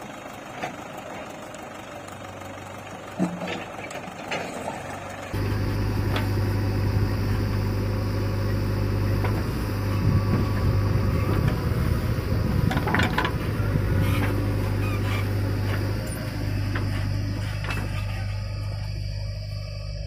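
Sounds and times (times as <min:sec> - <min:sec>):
diesel engine running: 0:00.0 - 0:20.0.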